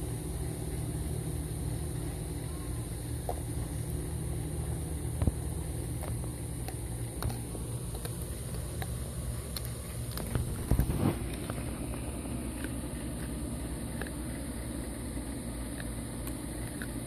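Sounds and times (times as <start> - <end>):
dogs chewing bones: 0.0 - 17.0
steady low hum: 0.0 - 17.0
sharp cracks and crunches: 5.2 - 17.0.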